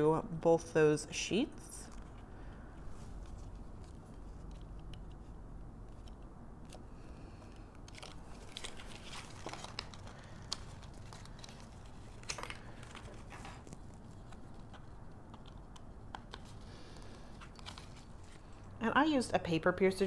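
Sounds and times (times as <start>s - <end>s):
paper piercer crunching through paper: 7.6s - 14.8s.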